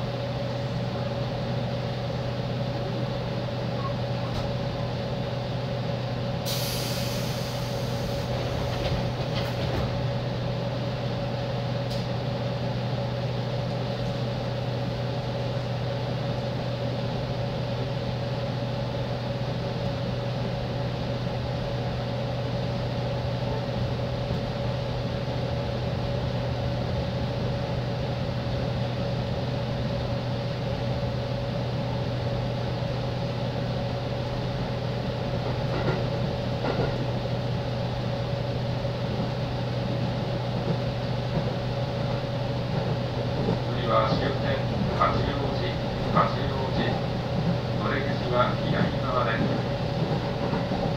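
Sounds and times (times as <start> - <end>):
train electrical hum: 0.0 - 50.9
compressed air hiss: 6.5 - 8.2
click: 11.9 - 12.1.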